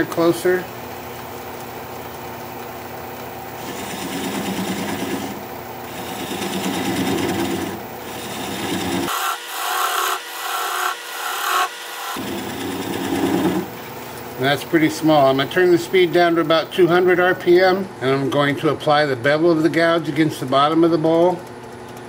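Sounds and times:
lathe gouge scraping wood: 0:03.6 - 0:13.8.

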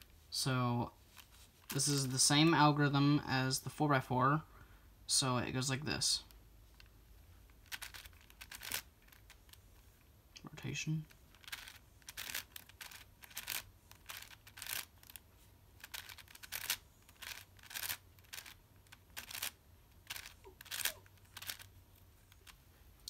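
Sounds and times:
puzzle cube turning clicks: 0:07.5 - 0:09.6, 0:11.1 - 0:22.6.

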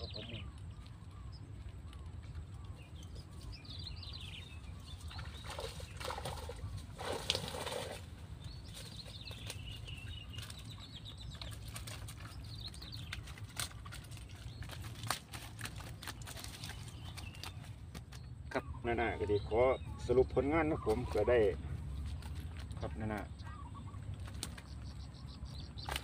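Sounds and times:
small birds chirping: 0:00.0 - 0:26.0
water pouring off a net: 0:05.1 - 0:08.2.

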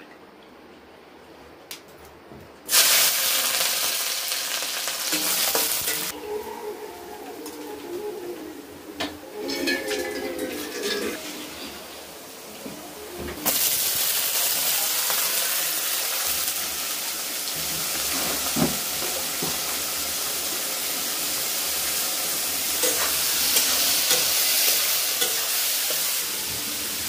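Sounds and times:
vegetables sizzling in hot oil: 0:02.7 - 0:06.2, 0:13.4 - 0:27.0.

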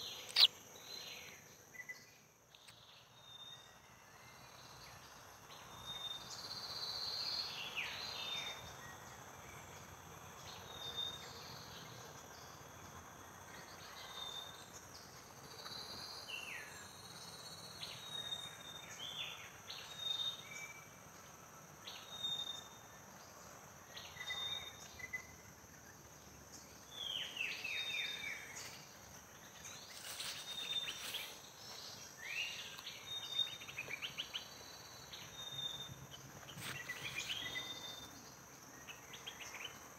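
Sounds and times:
birds chirping: 0:00.0 - 0:01.4
insects buzzing: 0:00.0 - 0:39.9.

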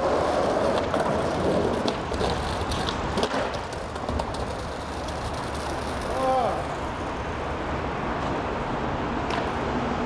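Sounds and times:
skateboard clacks: 0:00.0 - 0:07.2, 0:09.1 - 0:09.7
skateboard wheels rolling on asphalt: 0:00.0 - 0:10.0.

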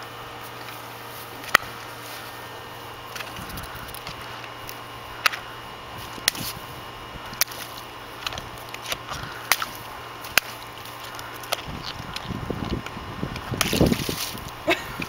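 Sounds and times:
water balloons bursting: 0:05.1 - 0:15.0.

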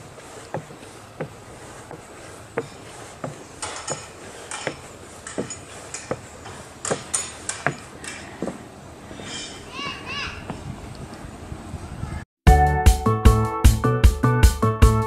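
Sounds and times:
sharp footstep scuffs: 0:00.0 - 0:08.6
footsteps on wooden stairs: 0:00.0 - 0:08.7.

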